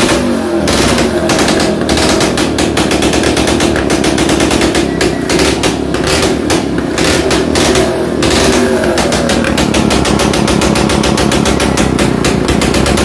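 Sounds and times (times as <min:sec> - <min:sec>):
scooter engine popping rattle: 0:00.0 - 0:13.0.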